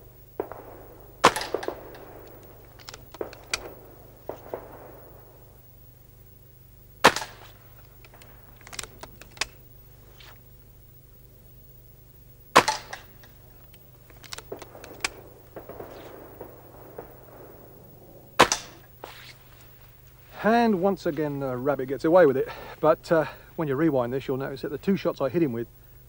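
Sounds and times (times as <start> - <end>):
air rifle shot crack: 0.4 - 5.6, 7.0 - 9.5, 12.5 - 13.4, 14.3 - 19.0.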